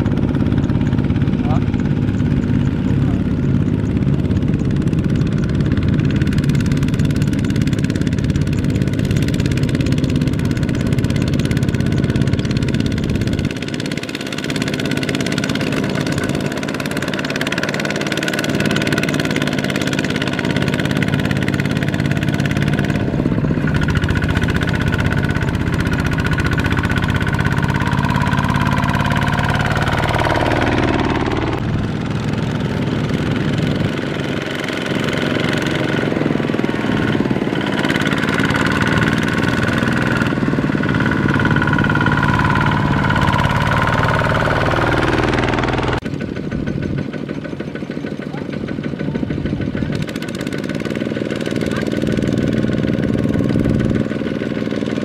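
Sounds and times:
power tiller diesel engine: 0.0s - 55.0s.

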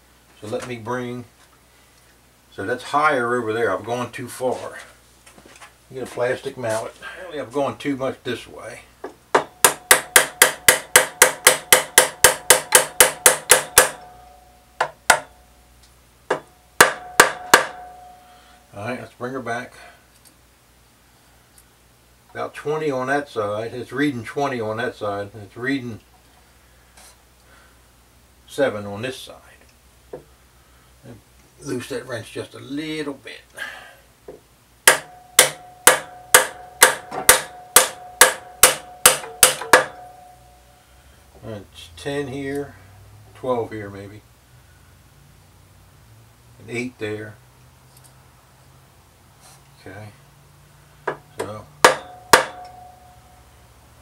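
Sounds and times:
plastic mallet tapping on metal: 9.4s - 14.1s, 14.8s - 15.3s, 34.9s - 40.1s, 51.1s - 52.8s.

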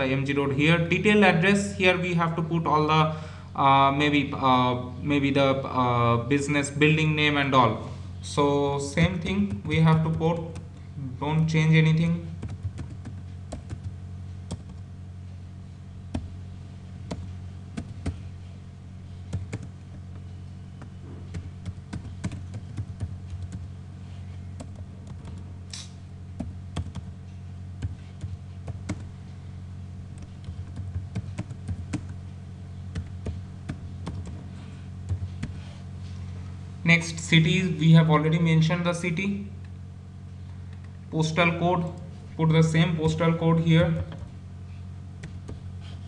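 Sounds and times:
steady low hum: 0.0s - 46.0s
typing on computer keyboard: 12.4s - 13.9s, 14.5s - 14.8s, 20.8s - 23.7s, 26.4s - 27.1s, 27.8s - 29.1s, 30.2s - 32.1s, 32.9s - 34.4s.

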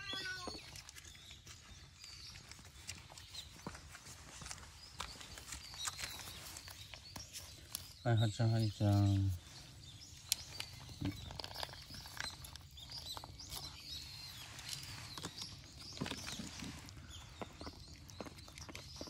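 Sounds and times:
cats crunching dry food: 0.0s - 19.0s
faint bird chirps: 4.8s - 19.0s.

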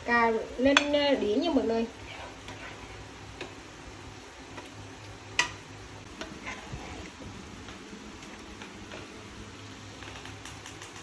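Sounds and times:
faint steady hum: 0.0s - 11.0s
utensil clicking against cookware: 10.0s - 11.0s.

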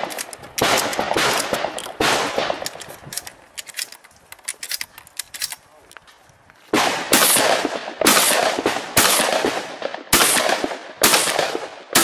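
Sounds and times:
shotgun blasts with echo: 0.0s - 2.7s, 6.7s - 12.0s.

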